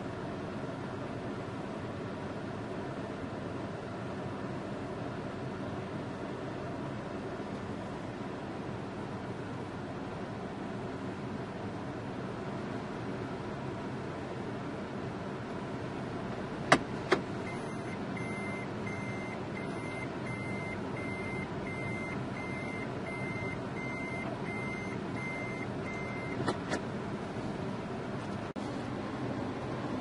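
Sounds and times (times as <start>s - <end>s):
vehicle engines idling: 0.0s - 30.0s
reversing alarm beeping: 17.5s - 26.4s.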